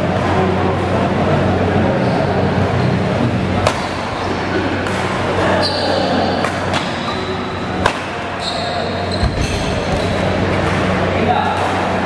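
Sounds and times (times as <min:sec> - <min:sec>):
rackets hitting shuttlecock: 0:03.6 - 0:04.1, 0:04.8 - 0:05.3, 0:06.4 - 0:07.2, 0:07.8 - 0:08.4.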